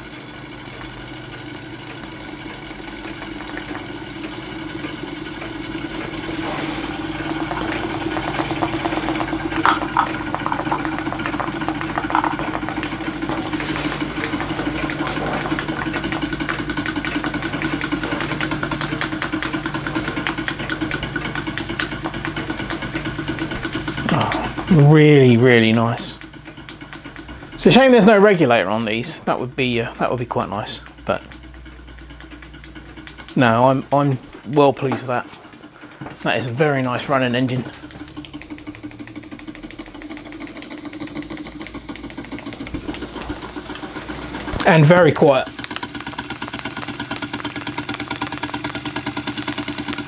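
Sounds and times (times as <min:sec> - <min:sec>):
model steam engine humming: 0:00.0 - 0:50.0.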